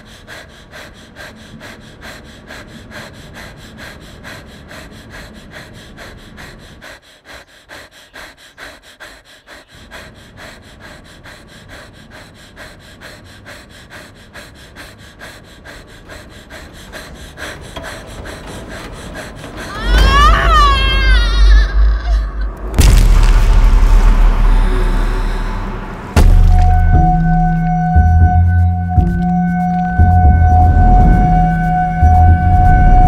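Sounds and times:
rapid panting breaths: 0.0s - 20.1s.

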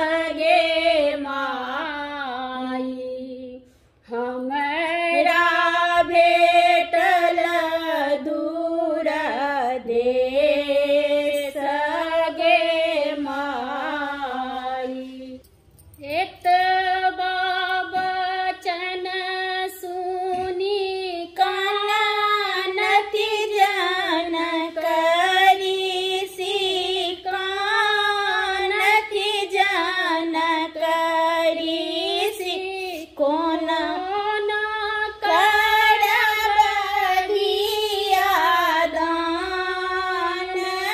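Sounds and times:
woman singing folk song: 16.0s - 40.9s.

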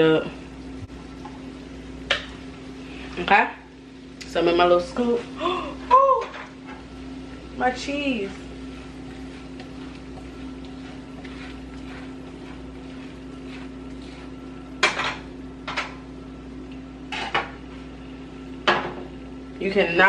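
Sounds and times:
steady low hum: 0.0s - 20.0s
utensil scraping a saucepan: 7.6s - 15.9s.

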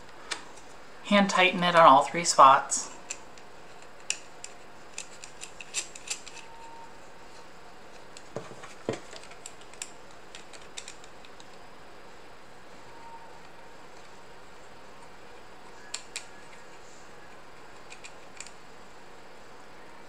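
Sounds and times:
nuts ticking and clicking: 9.2s - 11.6s.

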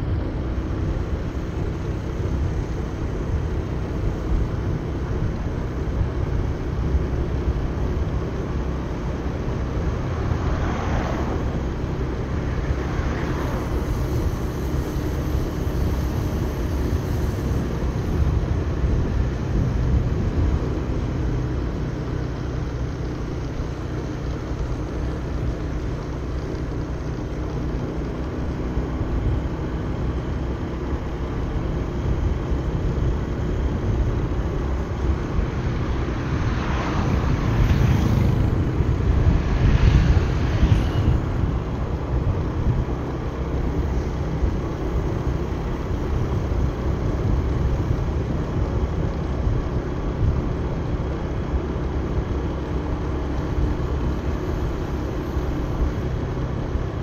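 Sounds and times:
motorbike engine rumble: 0.0s - 57.0s
wind on microphone: 33.0s - 43.2s.

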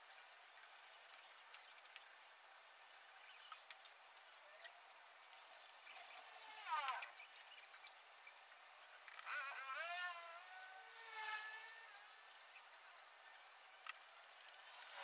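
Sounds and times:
faint animal calls: 5.9s - 7.5s.

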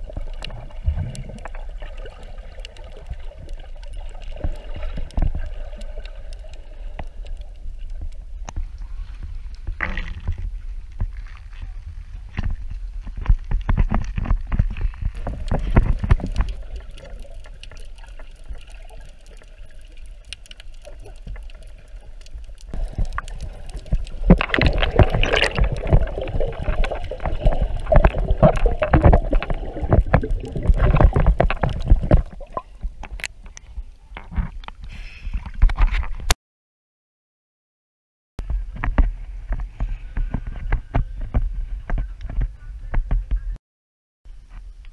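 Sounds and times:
water splashing: 0.0s - 11.6s, 15.2s - 36.2s
underwater rumble of moving water: 0.0s - 36.2s, 38.4s - 43.6s
underwater clicks: 13.2s - 36.4s.

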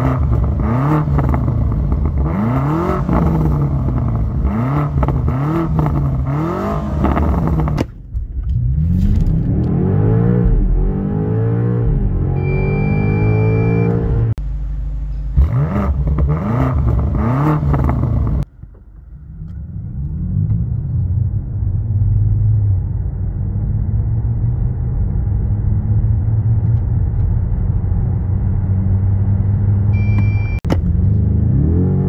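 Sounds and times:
car engine upshifting: 0.0s - 21.1s
electric car drive and road noise: 0.0s - 32.0s
short electronic beep: 12.3s - 14.3s, 30.0s - 30.7s.

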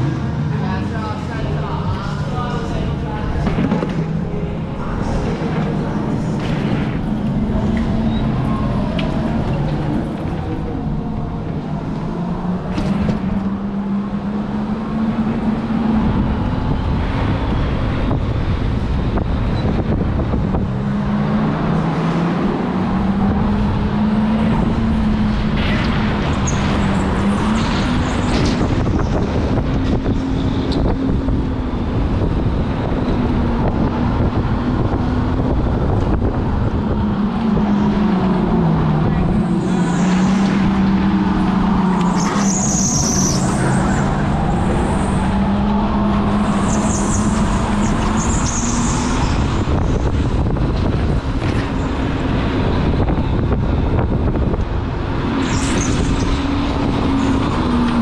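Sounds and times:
kart rumbling on track: 0.0s - 58.0s
high squeals: 39.1s - 50.2s.

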